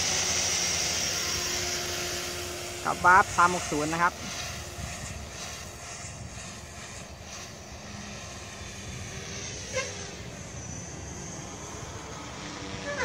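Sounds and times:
helicopter rotor whine: 0:00.0 - 0:13.0
wind noise on microphone: 0:04.2 - 0:13.0.

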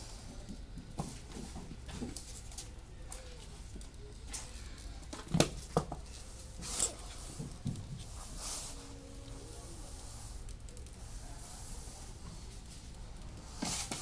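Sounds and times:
scraping rustle: 0:06.0 - 0:10.7.

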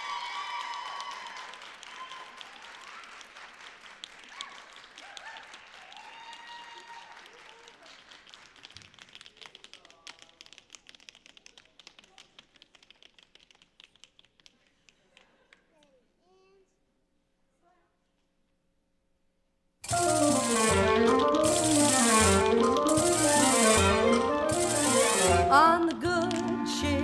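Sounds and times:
audience applauding: 0:00.0 - 0:13.4, 0:19.9 - 0:25.6.

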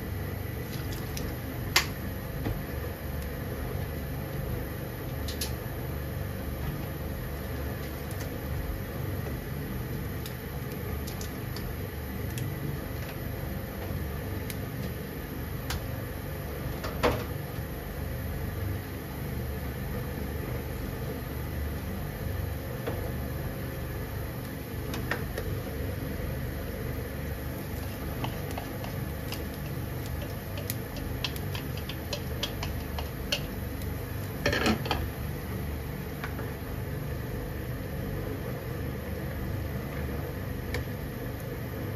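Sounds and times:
water boiling in a frying pan: 0:00.0 - 0:41.9.

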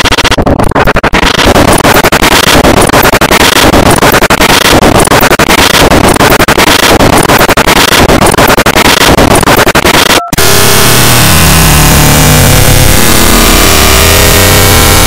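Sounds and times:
harsh distorted noise music: 0:00.0 - 0:15.0
low drone: 0:10.4 - 0:15.0.

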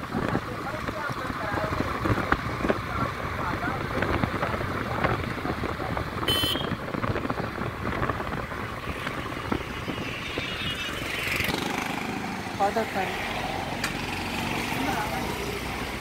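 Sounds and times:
wind rushing over microphone: 0:00.0 - 0:12.6
motorcycle engine: 0:00.0 - 0:16.0.

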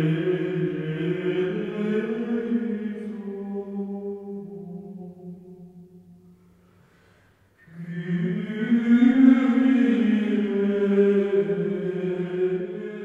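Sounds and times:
low droning chant: 0:00.0 - 0:06.3, 0:07.7 - 0:13.0.

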